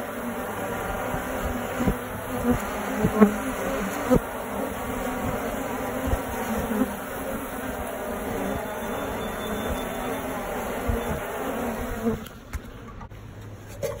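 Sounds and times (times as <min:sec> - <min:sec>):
bees buzzing: 0:00.0 - 0:12.9.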